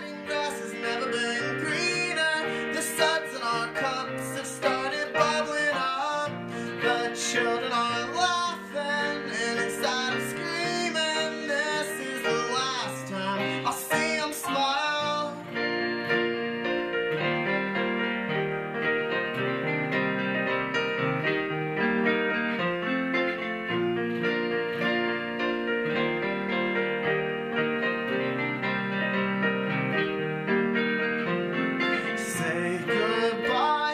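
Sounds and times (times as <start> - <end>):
man singing: 0.0 - 15.5, 32.0 - 33.9
acoustic guitar: 0.0 - 20.8
keyboard playing: 0.0 - 33.9.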